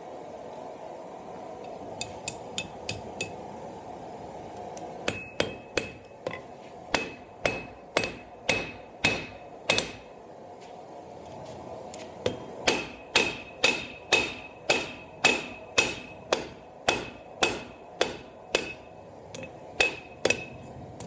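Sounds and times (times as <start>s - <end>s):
hammer striking hot steel on anvil: 1.9s - 3.5s, 5.0s - 10.2s, 12.2s - 21.0s.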